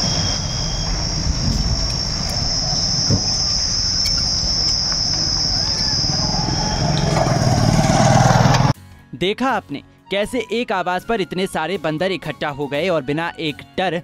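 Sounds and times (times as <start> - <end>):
high-pitched insect drone: 0.0 - 8.7
low background rumble: 0.0 - 8.7.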